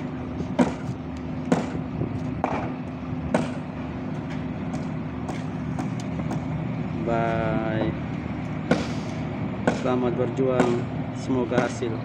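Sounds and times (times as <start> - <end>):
boat engine droning: 0.0 - 12.0
sharp knocks: 0.6 - 0.9, 1.5 - 1.8, 2.4 - 3.7, 8.7 - 9.0, 9.6 - 10.0.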